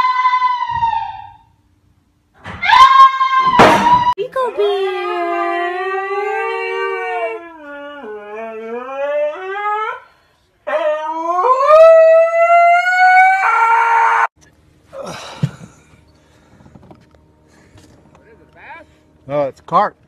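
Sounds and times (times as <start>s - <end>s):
husky howling: 0.0s - 1.5s, 2.6s - 10.1s, 10.7s - 14.3s.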